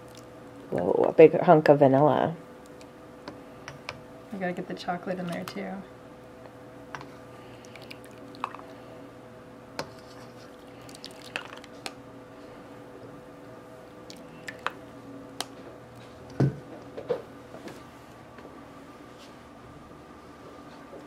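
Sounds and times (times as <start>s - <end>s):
liquid squishing and dripping: 0.0s - 0.3s, 7.5s - 8.7s, 10.4s - 12.0s, 14.0s - 14.8s
faint steady hum: 0.0s - 21.0s.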